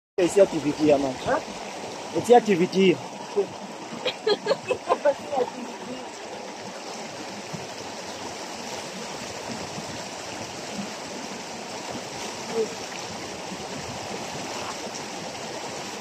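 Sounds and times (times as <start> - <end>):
stream water rushing: 0.2 - 16.0
water splashing: 0.2 - 16.0
person speaking: 4.1 - 6.1.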